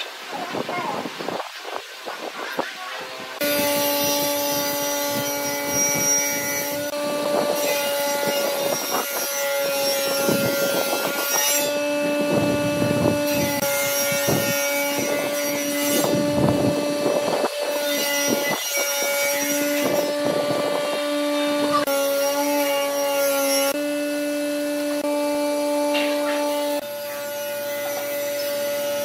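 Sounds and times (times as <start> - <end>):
steady hum: 10.2 - 18.4.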